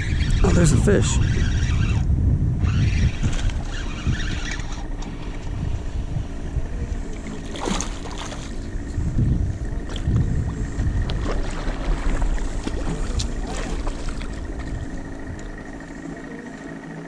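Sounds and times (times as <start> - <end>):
spinning reel reeling in: 0.0 - 5.2
wind rumble on microphone: 0.0 - 16.5
fish splashing: 7.0 - 8.8, 9.8 - 15.9.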